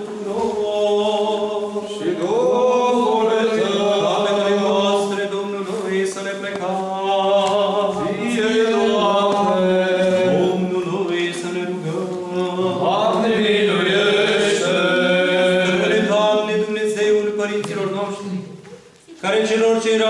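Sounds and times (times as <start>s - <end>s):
voices singing liturgical chant: 0.0s - 20.0s.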